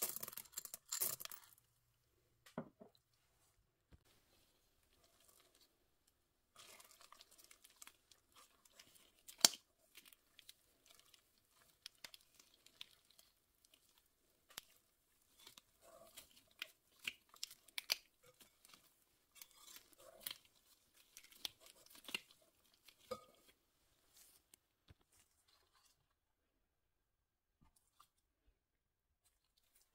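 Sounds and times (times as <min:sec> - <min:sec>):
whisk stirring thick batter: 0:06.5 - 0:24.4.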